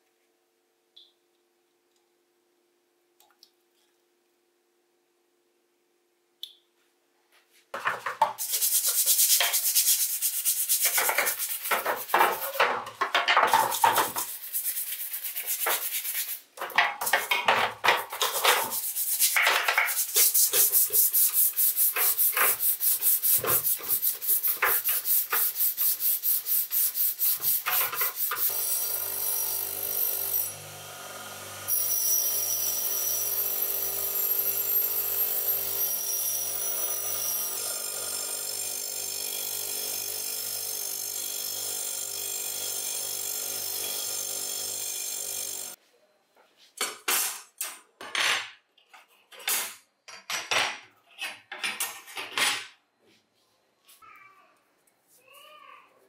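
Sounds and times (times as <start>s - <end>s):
small electric motor running: 28.2s - 45.8s.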